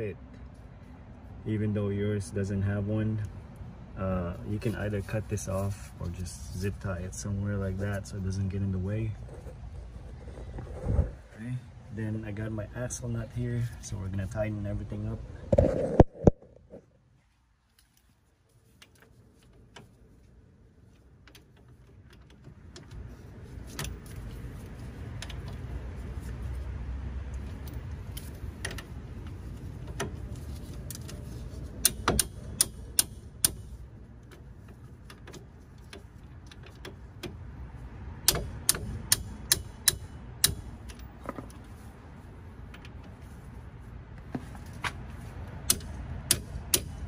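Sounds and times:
ratchet wrench clicking: 38.2s - 41.1s.

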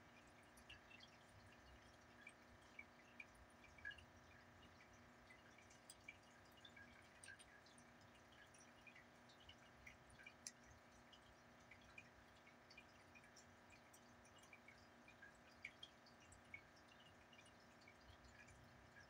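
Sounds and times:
faint room hum: 0.0s - 19.0s
faint ticks: 0.0s - 19.0s.

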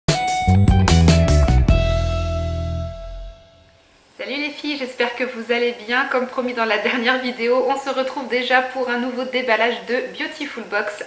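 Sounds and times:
intro jingle with ringing chord: 0.2s - 3.7s.

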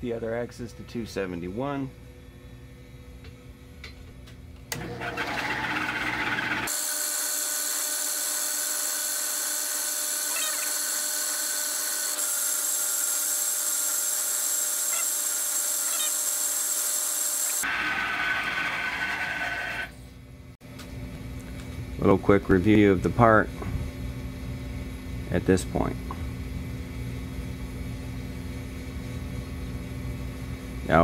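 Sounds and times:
drill press drilling brass: 4.7s - 19.9s.

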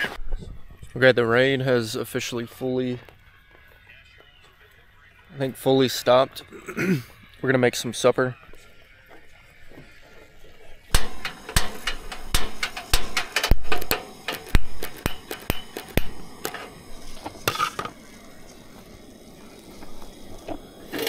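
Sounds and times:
cookware clattering: 17.4s - 18.0s.

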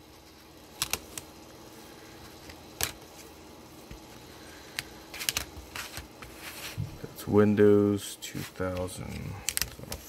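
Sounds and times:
plastic floppy disks clacking: 0.7s - 1.3s, 2.4s - 3.1s, 4.7s - 6.3s, 8.6s - 10.0s.

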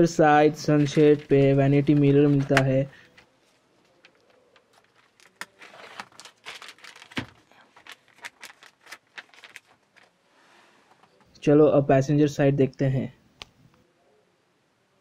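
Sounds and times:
plastic wrap crinkling: 0.8s - 10.2s.

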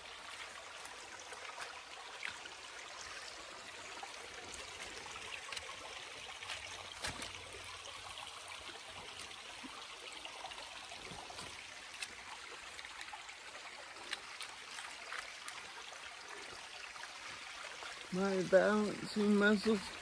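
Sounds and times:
creek running: 0.0s - 20.0s.

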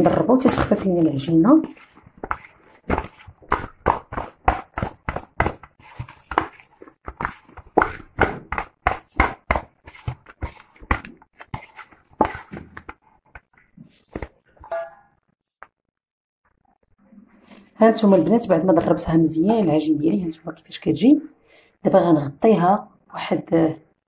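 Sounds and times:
wet slaps of dough beaten: 0.1s - 13.5s.

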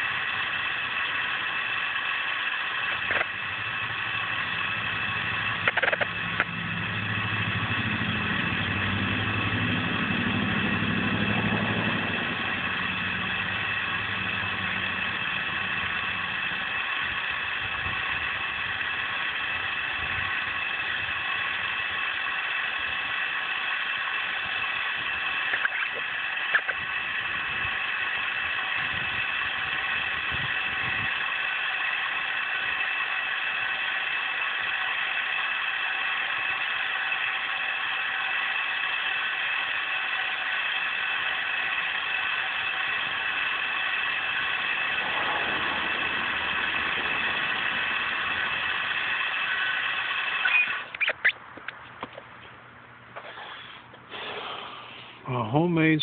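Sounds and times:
electric motor whining: 0.0s - 52.2s
motor clicks: 0.0s - 55.2s.

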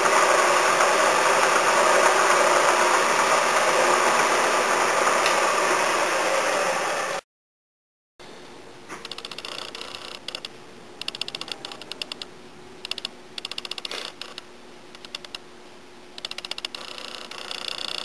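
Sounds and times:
hand tap clicking and creaking: 16.2s - 18.0s.

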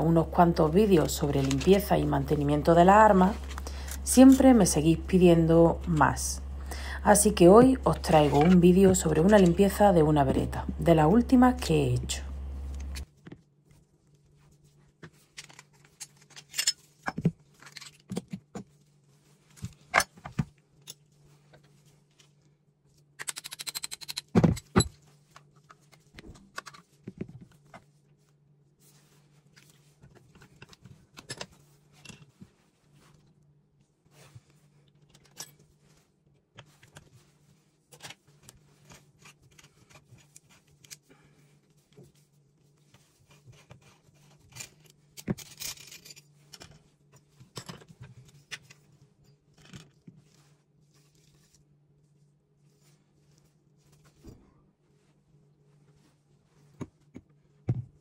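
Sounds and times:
faint low hum: 0.0s - 13.1s
metal gun parts clicking and clinking: 15.4s - 16.8s, 23.2s - 24.8s, 44.5s - 46.8s.

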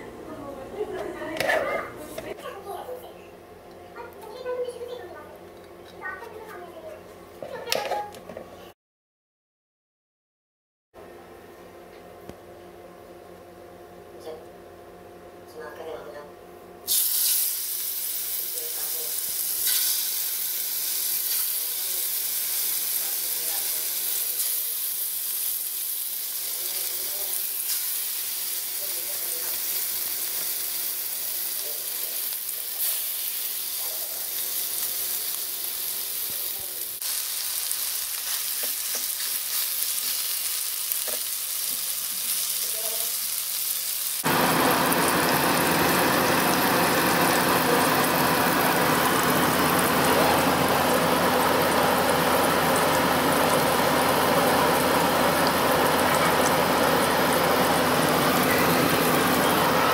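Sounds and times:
chicken sizzling in hot oil: 16.9s - 59.9s.

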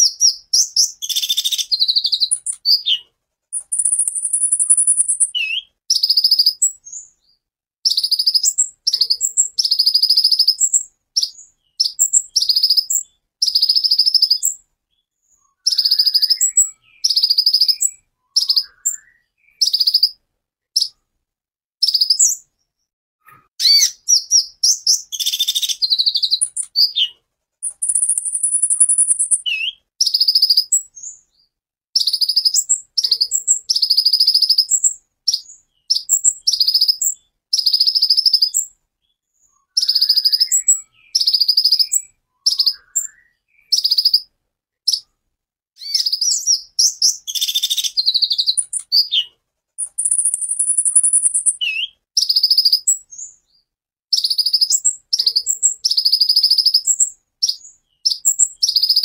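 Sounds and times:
high thin bird trills: 0.0s - 6.6s, 23.3s - 30.8s, 45.8s - 52.8s
bird chirping: 0.0s - 21.1s, 21.8s - 45.2s, 45.8s - 59.0s.

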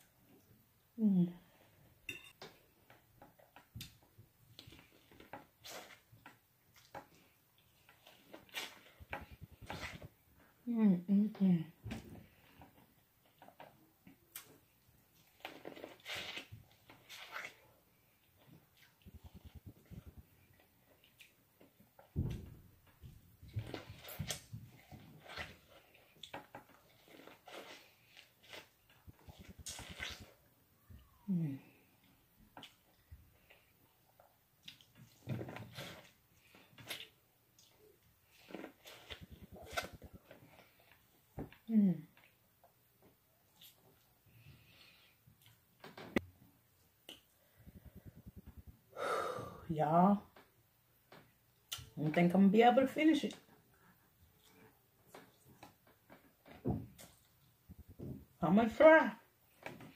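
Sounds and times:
person chewing corn on the cob: 23.5s - 30.4s.

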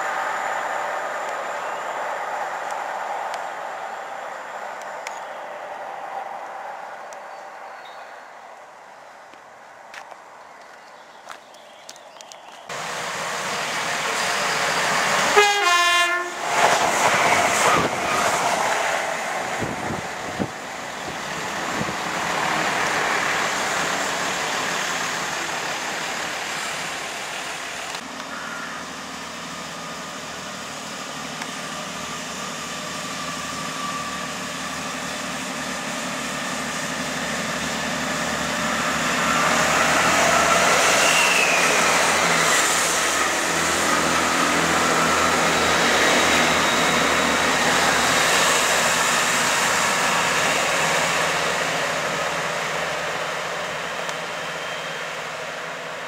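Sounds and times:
diesel train engine passing: 0.0s - 11.4s, 12.7s - 56.0s
trains passing at speed: 0.0s - 56.0s
train horn blast: 15.2s - 16.4s.

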